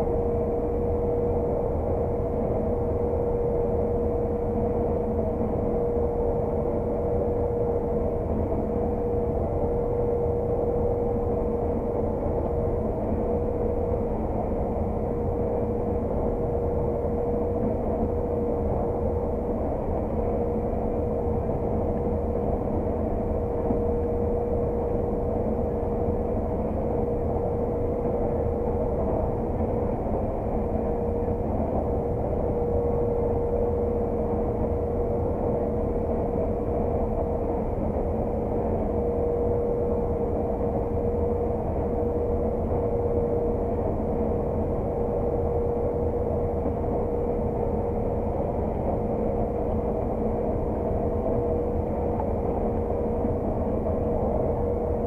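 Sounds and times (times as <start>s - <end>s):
combine harvester drone: 0.0s - 55.0s
constant machine whine: 0.0s - 55.0s.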